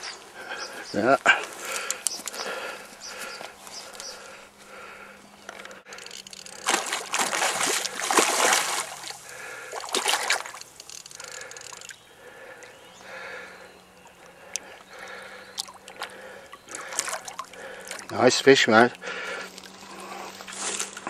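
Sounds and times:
fish splashing in water: 6.4 - 12.0, 13.2 - 18.2.

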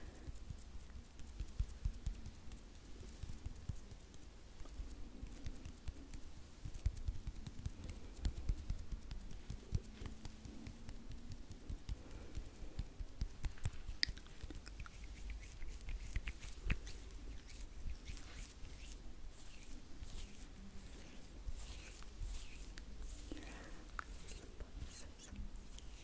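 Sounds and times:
hands rubbing together: 0.6 - 26.0.

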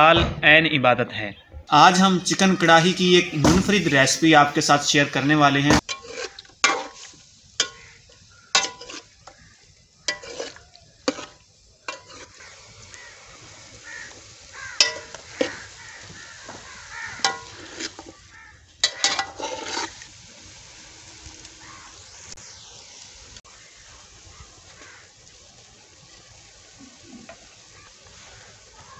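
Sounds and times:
chicken sizzling faintly: 1.8 - 28.9
spoon scraping metal pan: 5.7 - 9.4, 10.1 - 12.6, 14.8 - 15.8, 17.0 - 18.2, 18.8 - 20.0.

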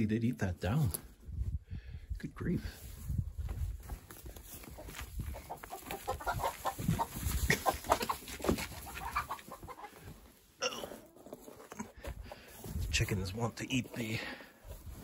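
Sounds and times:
chickens clucking: 4.2 - 15.0.

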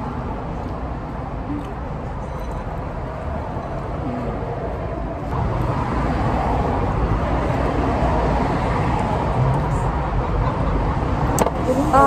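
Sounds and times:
low rumble of passing vehicles: 0.0 - 12.0.

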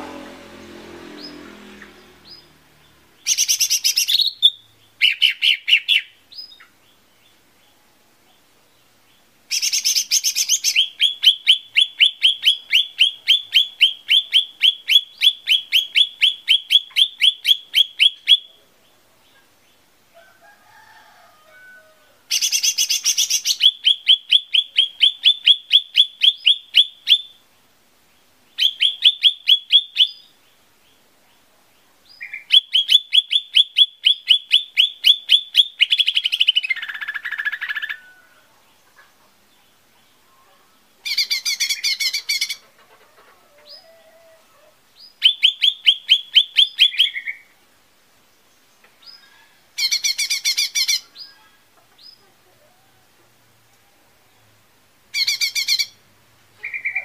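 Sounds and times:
harsh buzzy bird call: 0.0 - 6.8, 9.5 - 18.6, 22.0 - 27.4, 32.1 - 38.5, 40.7 - 47.6, 49.0 - 52.4, 55.1 - 57.0
bird singing: 0.0 - 19.9, 21.6 - 42.7, 43.6 - 47.6, 48.4 - 53.0, 53.8 - 57.0.

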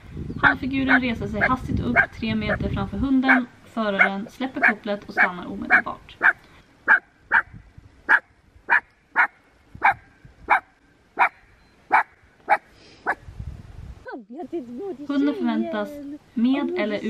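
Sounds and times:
dog barking sharply: 5.7 - 7.5, 8.1 - 13.2.

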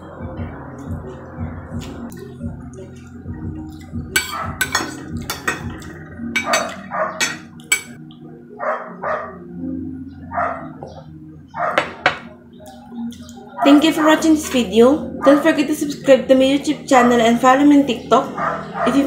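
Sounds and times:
cutlery clinking on ceramic plate: 4.2 - 5.8, 6.4 - 8.0.

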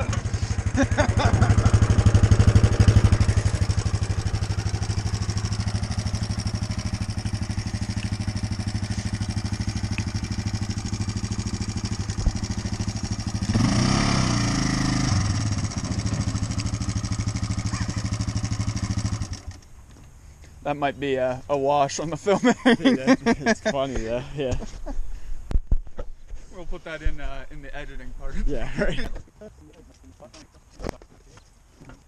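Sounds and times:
atv engine revving: 0.0 - 19.6.

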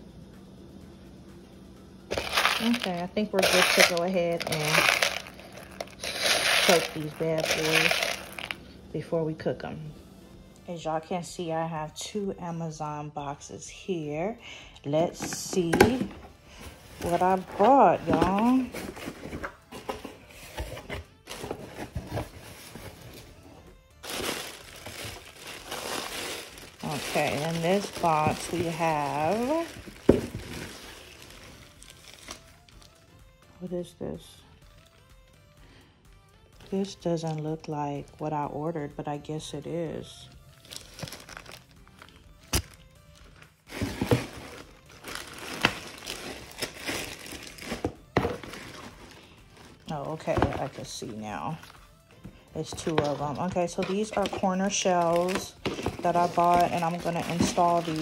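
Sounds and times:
packaging crinkling: 2.1 - 8.6, 24.0 - 32.8, 40.6 - 50.7, 52.7 - 58.0.

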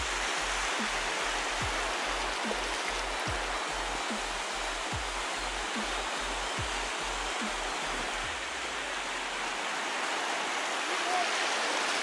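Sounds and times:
ocean surf breaking: 0.0 - 12.0.

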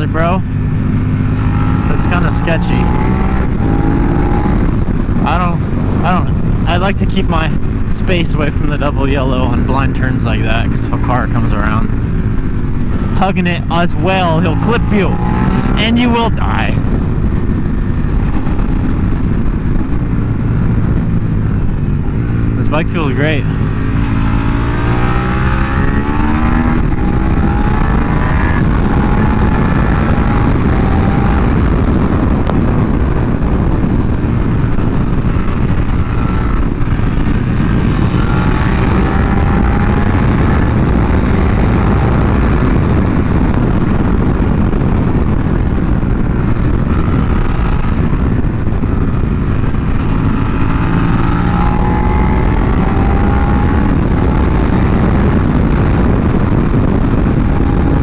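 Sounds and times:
motorcycle engine revving: 0.0 - 58.0
wind noise: 0.0 - 58.0.

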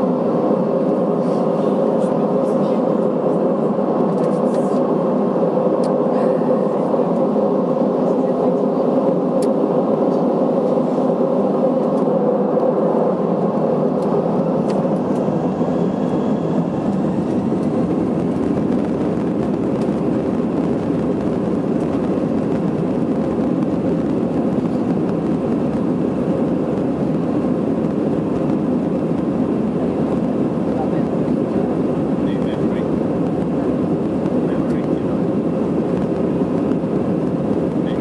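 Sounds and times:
jet engine rush in cabin: 0.0 - 38.0.

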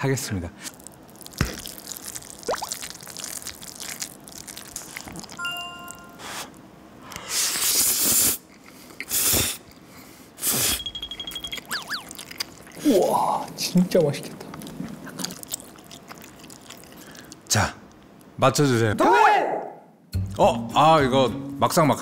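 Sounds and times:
wet slurps: 0.6 - 5.4, 11.6 - 13.0, 14.5 - 17.5
chewing sounds: 0.6 - 6.4, 11.0 - 18.3
electronic beeps: 10.8 - 12.1.

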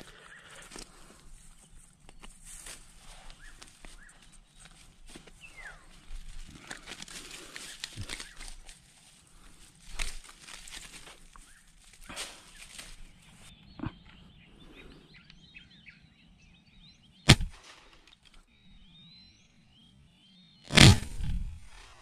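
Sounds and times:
birds chirping: 0.0 - 22.0
air rifle shot: 17.3 - 17.9, 20.7 - 21.6.

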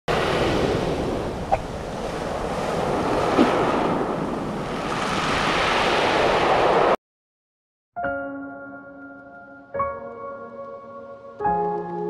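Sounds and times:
waves washing onto pebble beach: 0.1 - 7.0
wind on microphone: 0.1 - 7.0.

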